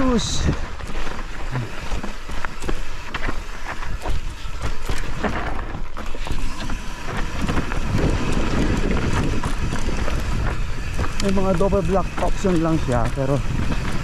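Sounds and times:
bike rattling clicks and knocks: 0:00.0 - 0:14.0
tyres crunching over gravel: 0:00.0 - 0:14.0
wind rumble on microphone: 0:00.0 - 0:14.0.

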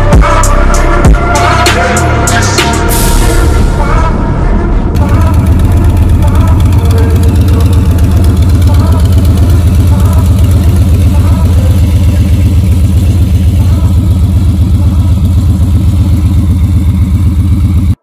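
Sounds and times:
motorcycle engine idling: 0:05.0 - 0:18.0.

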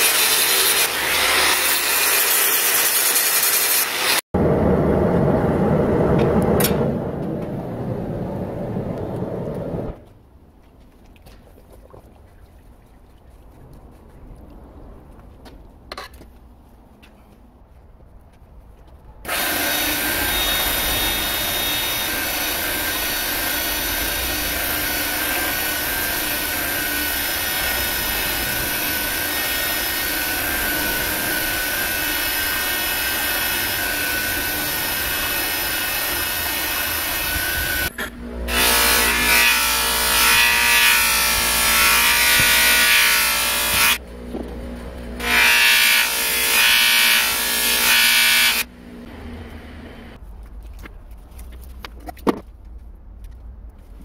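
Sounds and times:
belt grinder grinding steel: 0:19.3 - 0:44.0.

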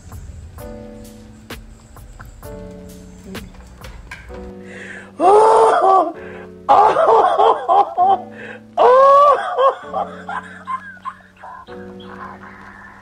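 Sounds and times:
background music: 0:00.0 - 0:13.0
woman crying out: 0:05.2 - 0:08.2, 0:08.8 - 0:10.4.

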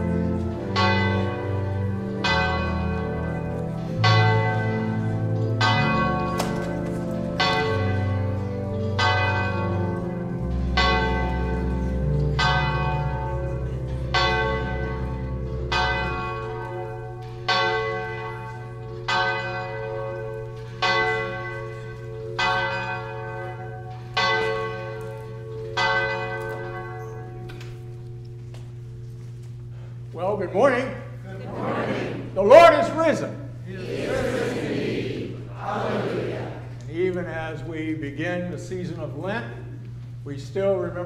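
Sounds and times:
church bell tolling: 0:00.0 - 0:31.2
low held notes: 0:00.0 - 0:41.0.

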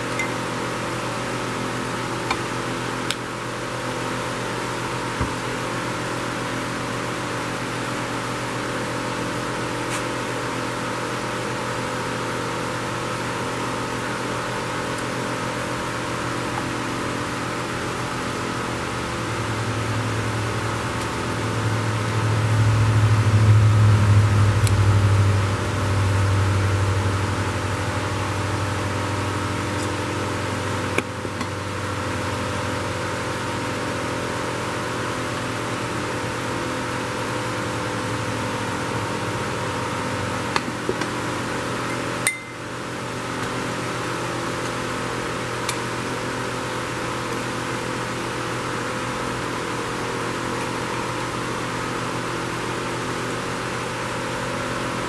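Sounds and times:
machine hum: 0:10.3 - 0:33.8.

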